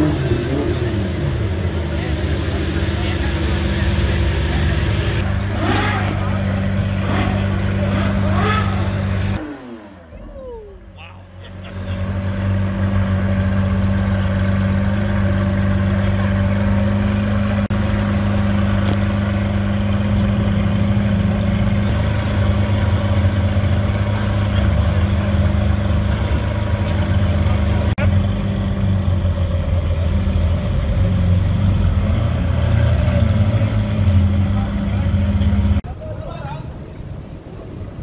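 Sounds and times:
car engine idling: 0.0s - 35.8s.

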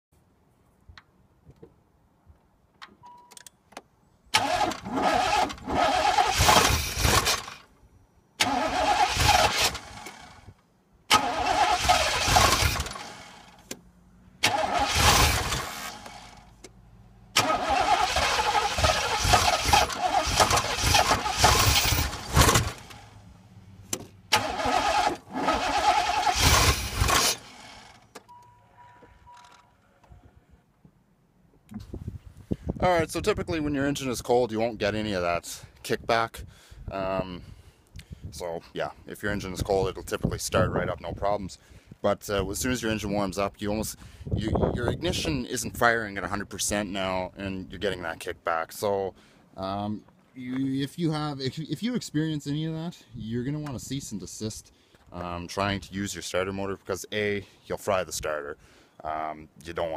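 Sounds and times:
engine kicking back: 4.3s - 7.6s, 8.4s - 28.3s
engine starter cranking: 4.3s - 7.7s, 8.4s - 13.8s, 14.4s - 16.7s, 17.3s - 23.2s, 23.9s - 28.4s.

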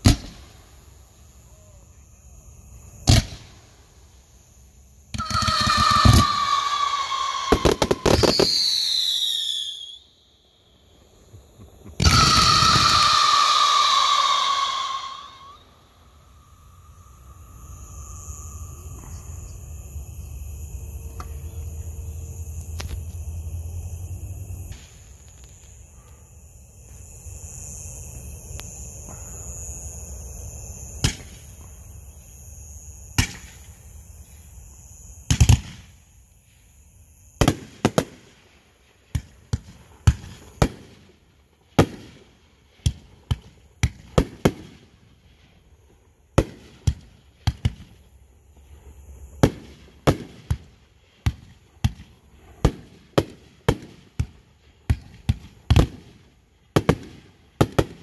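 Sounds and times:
loud sharp bangs: 5.1s - 8.9s, 11.9s - 15.6s.

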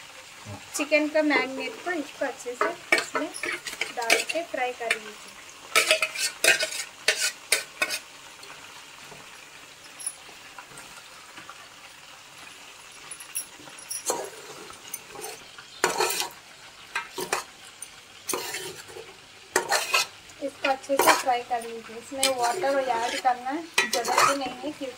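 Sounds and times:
food sizzling: 0.0s - 24.9s
metal spoon scraping pots: 2.6s - 5.0s, 5.7s - 8.0s, 13.2s - 17.5s, 18.2s - 24.7s.

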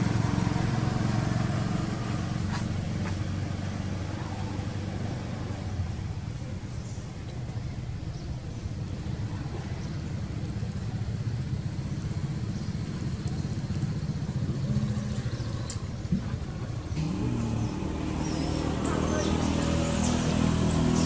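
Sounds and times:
motorbike engine passing: 0.0s - 5.4s, 10.6s - 21.0s.

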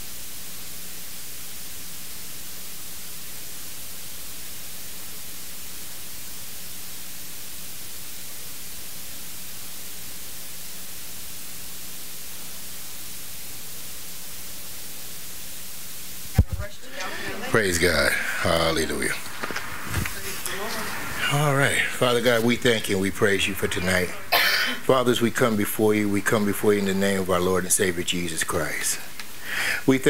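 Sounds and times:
electronic hiss: 0.0s - 30.0s
faint low hum: 16.2s - 30.0s.

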